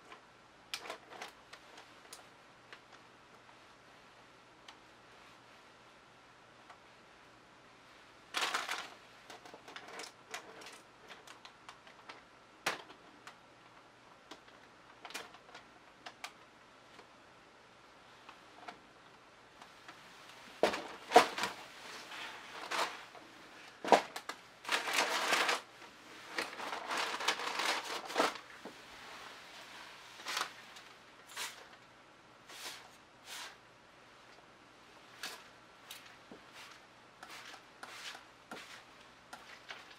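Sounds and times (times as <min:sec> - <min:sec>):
plastic sheeting rustles: 0:20.1 - 0:31.8.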